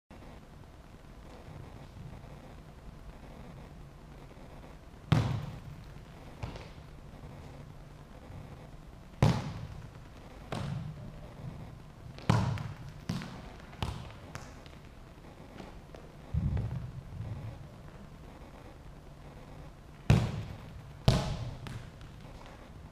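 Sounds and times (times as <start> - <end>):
football thudding on hall floor: 5.1 - 5.7, 6.4 - 6.8, 9.2 - 9.8, 10.5 - 11.6, 12.2 - 14.8, 16.3 - 17.5, 20.0 - 22.4.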